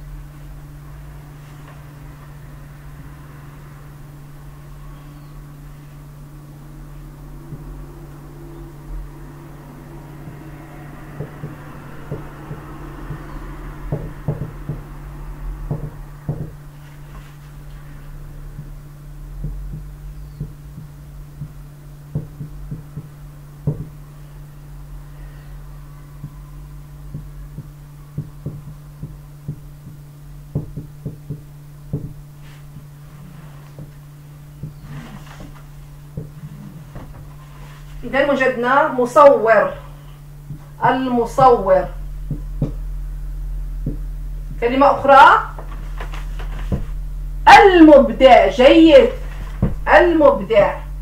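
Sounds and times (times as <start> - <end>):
steady low hum: 0.0 - 51.0
marker tapping on whiteboard: 13.9 - 14.8, 27.1 - 32.2.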